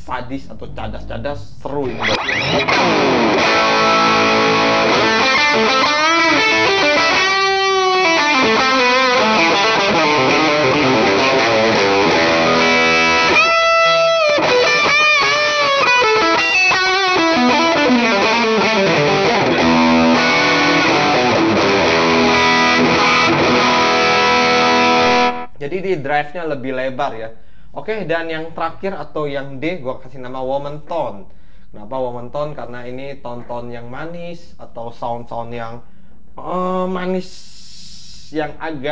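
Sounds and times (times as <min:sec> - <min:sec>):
distorted electric guitar lead: 0:01.7 - 0:25.5.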